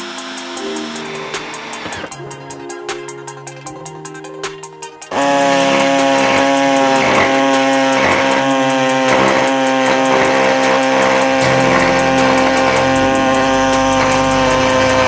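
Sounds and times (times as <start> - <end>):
air saw cutting sheet steel: 0.0 - 2.2, 5.1 - 15.0.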